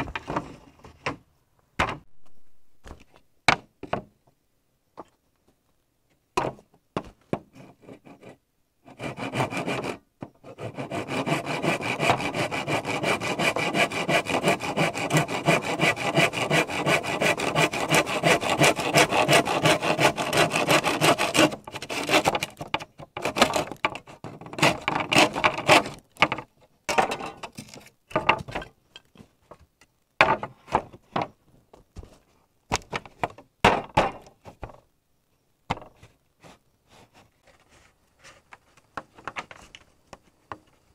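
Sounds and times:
hand saw cutting bamboo: 8.9s - 22.5s, 23.2s - 26.0s.

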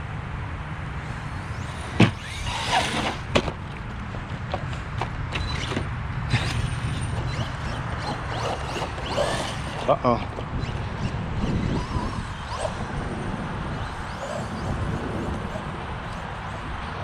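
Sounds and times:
electric motor whining: 1.0s - 3.8s, 5.3s - 16.7s
toy truck crashing and tumbling: 1.6s - 3.8s, 4.9s - 11.6s.

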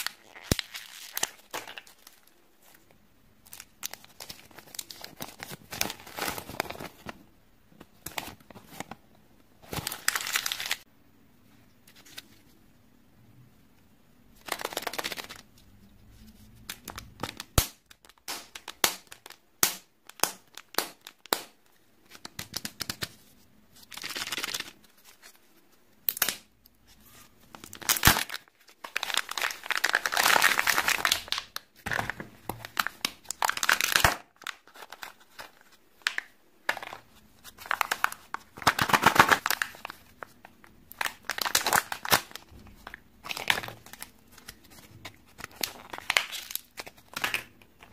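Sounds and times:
plastic wrapping crinkling and tearing: 0.0s - 2.8s, 3.4s - 7.2s, 9.6s - 10.8s, 14.4s - 15.5s, 27.0s - 47.9s.

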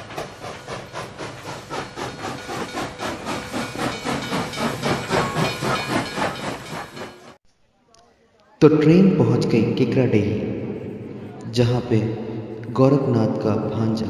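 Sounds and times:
train chugging rhythmically: 0.0s - 7.4s.

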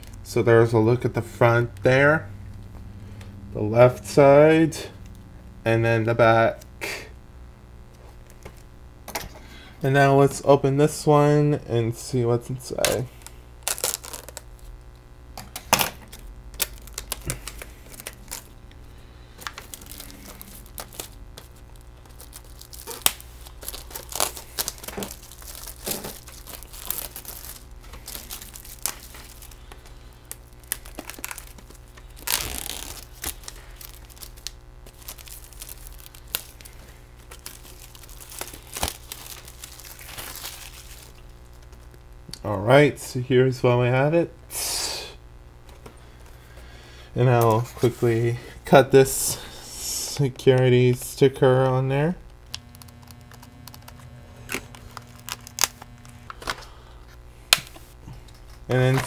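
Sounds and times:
plastic wrapping crinkling and tearing: 12.6s - 42.3s, 50.1s - 59.0s.

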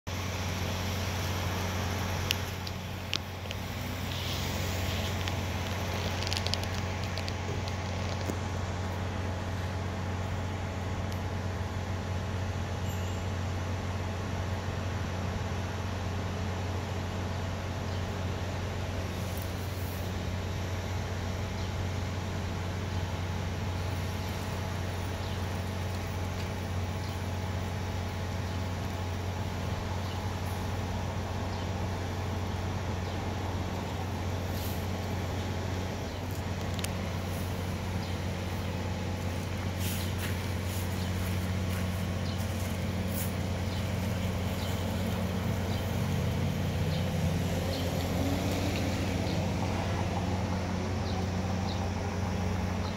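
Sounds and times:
vehicle idling: 0.1s - 52.9s
sharp clicks: 2.2s - 8.4s.

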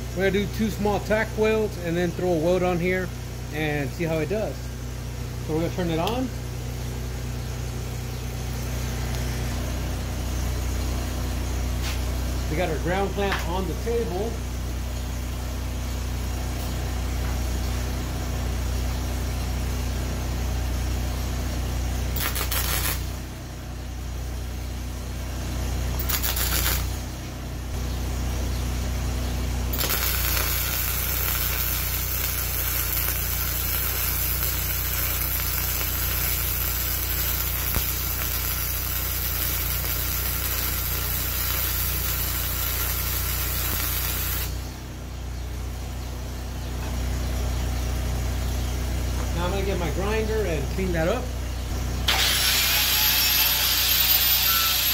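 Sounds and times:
generator engine humming: 0.0s - 52.5s
welder crackling tack welds: 5.5s - 6.3s, 21.5s - 23.3s, 25.9s - 27.1s, 29.7s - 44.8s, 52.0s - 54.9s
sizzling weld bead: 22.0s - 23.3s, 25.9s - 27.0s, 29.7s - 44.7s, 52.1s - 54.9s.

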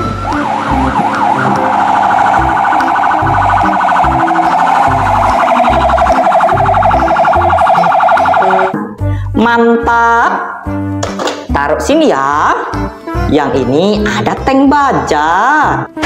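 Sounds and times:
fire truck siren: 0.0s - 8.8s.

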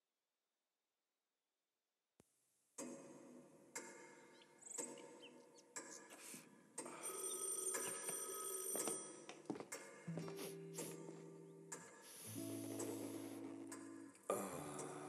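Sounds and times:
film sound effects and tones: 3.8s - 15.0s.

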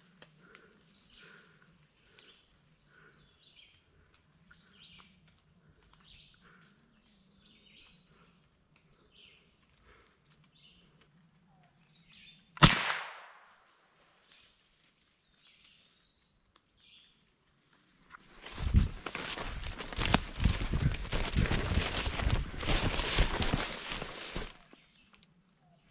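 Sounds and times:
insects droning: 0.0s - 25.9s
birds chirping: 0.6s - 9.6s
rifle shot: 12.6s - 13.6s.

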